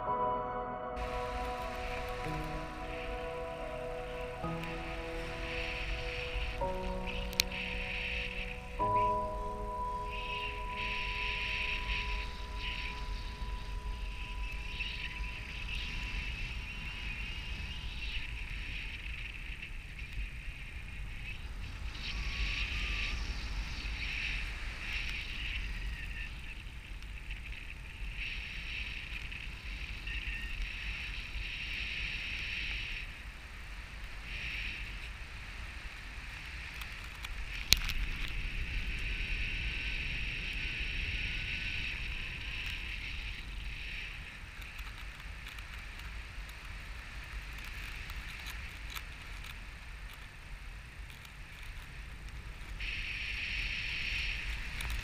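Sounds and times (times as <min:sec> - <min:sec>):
high-pitched tone: 0:00.0 - 0:16.2.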